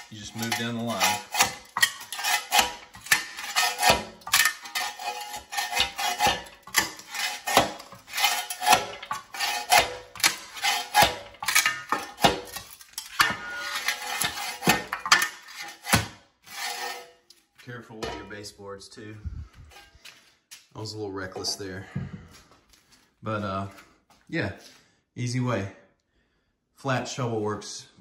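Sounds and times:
knocks and clatters of wood strips: 0.0s - 18.4s
shovel scraping concrete floor: 0.0s - 18.5s.

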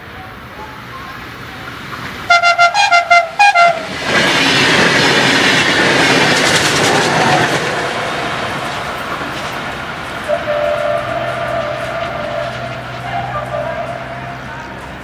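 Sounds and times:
train wheels rushing on rails: 0.0s - 15.0s
clatter over rail joints: 0.6s - 15.0s
train horn blasts: 2.3s - 4.0s, 10.2s - 15.0s.

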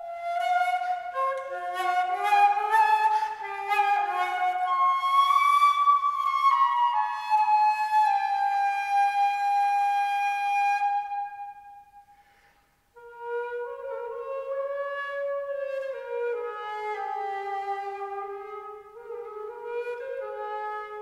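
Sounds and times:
solo flute playing slow air: 0.0s - 21.0s.

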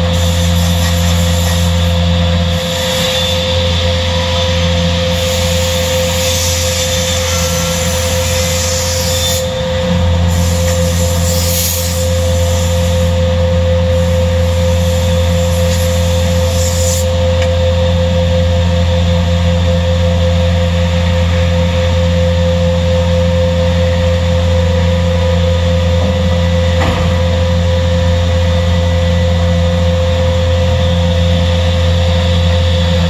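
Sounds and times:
saw hissing through board: 0.0s - 3.9s, 5.0s - 9.6s, 10.3s - 13.2s, 13.9s - 17.2s
machine drone and hum: 0.0s - 33.0s.

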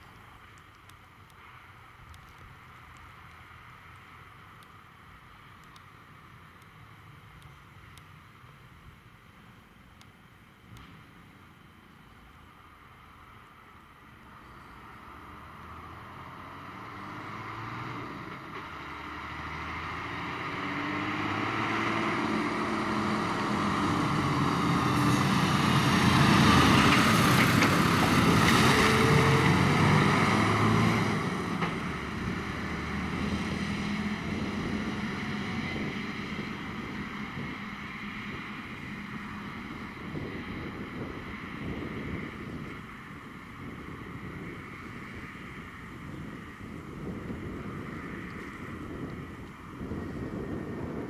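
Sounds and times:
fire engine driving past: 10.6s - 51.0s
wind noise on microphone: 15.8s - 51.0s.

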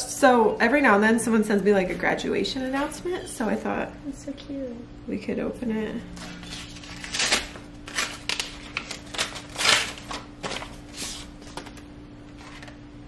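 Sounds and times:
paper envelope tearing: 6.2s - 11.3s, 12.3s - 12.8s
card crinkling: 6.2s - 12.8s.

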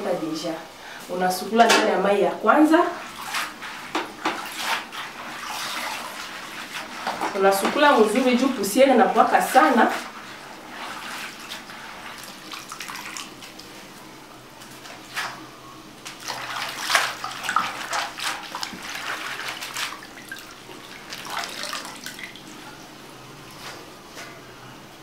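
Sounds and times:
water splashes: 3.0s - 13.7s, 16.1s - 22.6s
hands rubbing greens in water: 3.0s - 13.8s, 16.1s - 22.4s.

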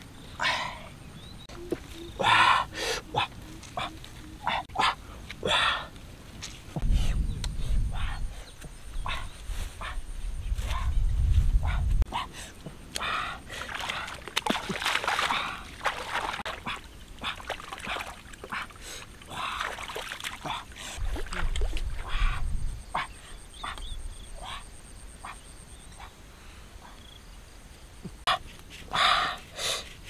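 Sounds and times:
water splashing and sloshing: 1.4s - 6.9s, 12.5s - 23.2s.

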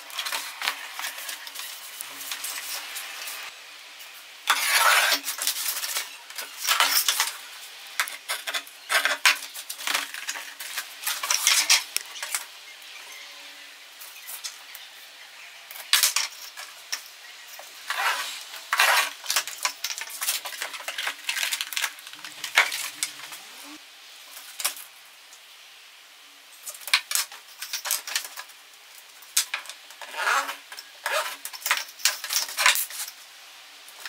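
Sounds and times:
clatter of sheet and tools: 4.5s - 7.4s, 8.0s - 12.5s, 15.8s - 17.0s, 17.6s - 23.4s, 26.6s - 28.5s, 29.3s - 33.2s.

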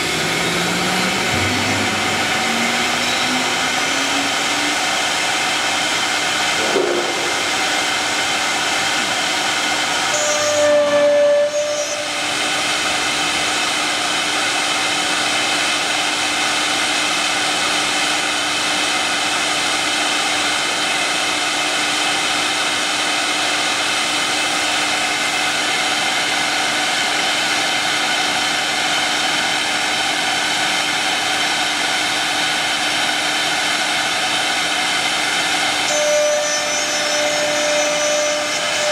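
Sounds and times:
wood router cutting board: 0.0s - 15.9s, 34.2s - 38.9s.

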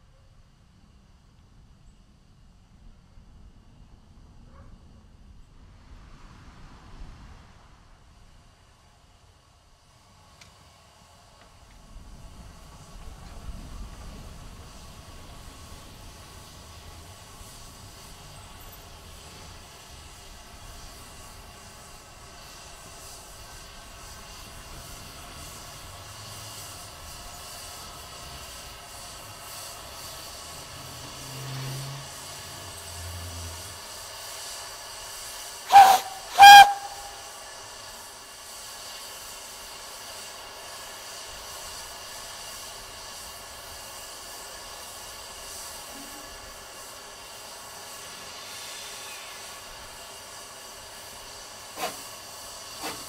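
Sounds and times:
steam locomotive hissing: 5.7s - 53.0s
steam whistle toots: 35.5s - 37.7s, 51.0s - 53.0s.

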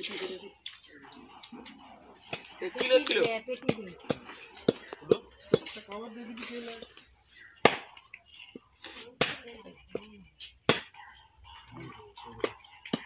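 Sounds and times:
faint voices talking: 0.0s - 13.0s.

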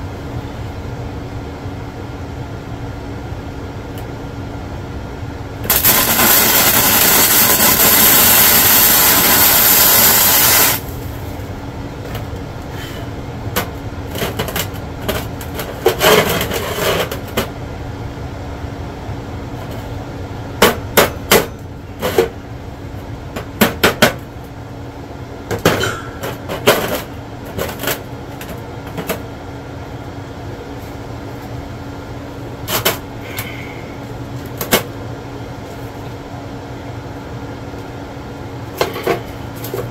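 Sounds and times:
welding arc crackling and hissing: 5.6s - 11.4s.

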